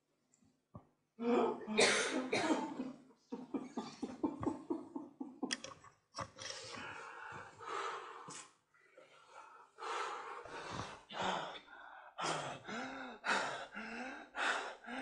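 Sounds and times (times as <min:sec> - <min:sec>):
man breathing hard: 0:06.6 - 0:15.0.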